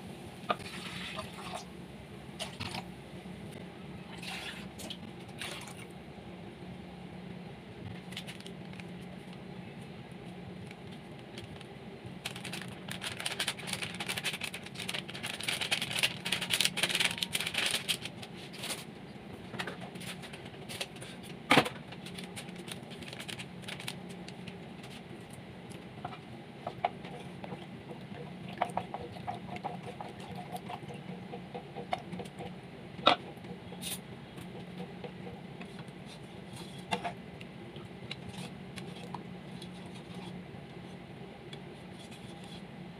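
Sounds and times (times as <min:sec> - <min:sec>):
steady low hum: 0:00.0 - 0:42.9
plastic sachet crinkling: 0:10.6 - 0:18.9, 0:22.0 - 0:24.6.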